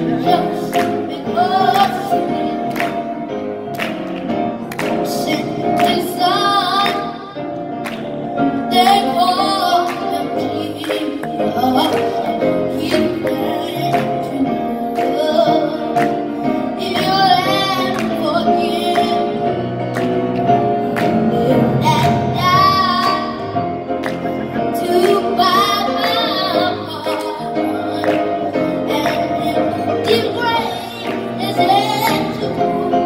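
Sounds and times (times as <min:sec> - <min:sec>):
boy singing into microphone: 0:00.0 - 0:03.1, 0:05.0 - 0:07.4, 0:08.7 - 0:19.6, 0:24.6 - 0:33.0.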